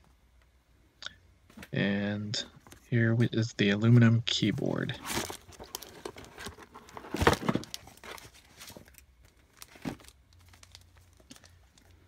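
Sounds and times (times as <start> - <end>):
plastic packaging crinkling: 5.0 - 12.0.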